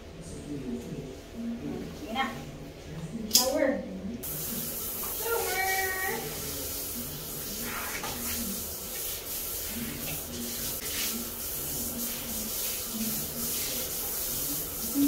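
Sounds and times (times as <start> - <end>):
shower head spraying water: 4.2 - 15.0.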